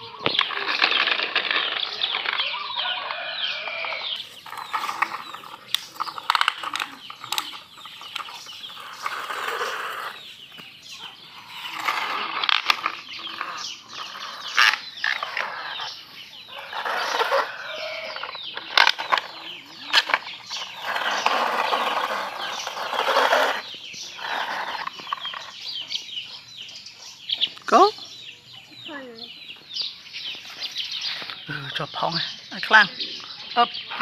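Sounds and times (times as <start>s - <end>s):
plastic toy scraping on dirt: 0.0s - 26.2s, 33.6s - 34.0s.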